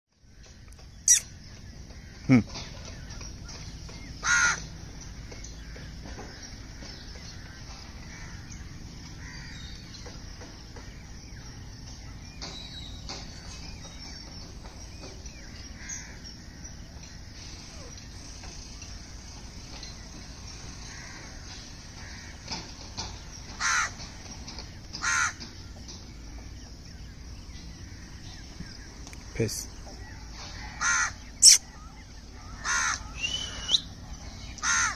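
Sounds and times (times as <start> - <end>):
crow cawing: 4.2 - 4.7, 7.4 - 8.5, 9.2 - 9.7, 20.7 - 22.6, 23.6 - 24.0, 25.0 - 25.5, 30.4 - 31.6, 32.4 - 33.6, 34.6 - 34.9.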